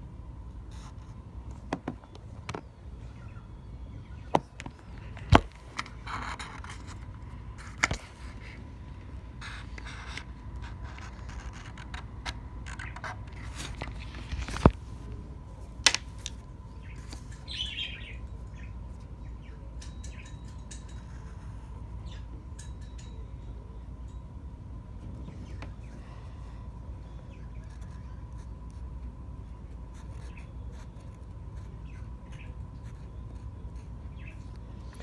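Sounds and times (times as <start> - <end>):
faint steady high tone: 16.7 - 28.7.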